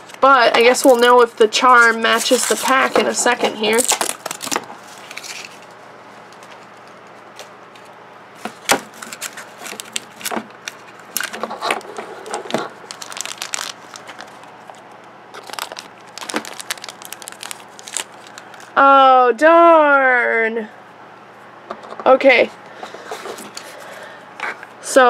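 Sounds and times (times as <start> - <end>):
plastic wrapping crinkling and tearing: 0.0 - 5.7, 8.5 - 18.8.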